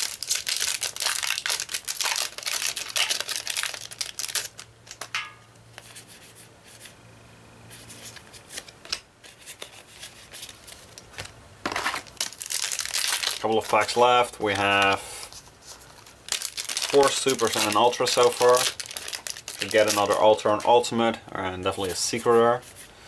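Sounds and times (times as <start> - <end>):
foil wrapper crinkling and tearing: 0.0 - 5.1, 11.7 - 20.9
cards sliding and flicking: 7.8 - 12.1.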